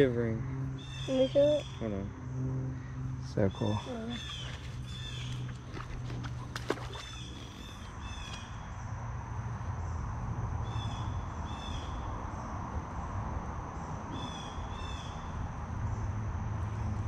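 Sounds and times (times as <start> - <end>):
high insect drone: 0.0 - 5.8, 7.0 - 17.0
bird calling: 0.8 - 1.9, 3.4 - 8.6.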